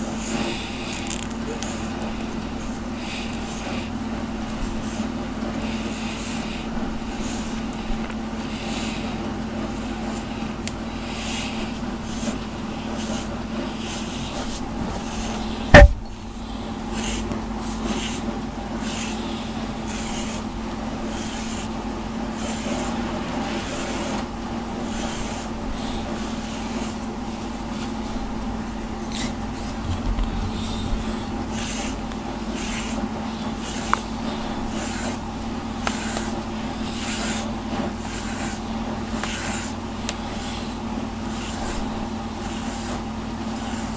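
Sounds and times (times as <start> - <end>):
brush raking through fur: 0.0 - 43.9
steady low hum: 0.0 - 43.9
sharp knock: 15.7 - 16.2.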